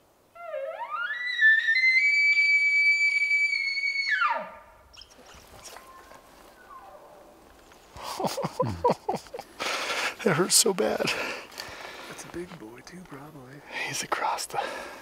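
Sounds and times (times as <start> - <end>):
elk bugling: 0.3 - 8.2.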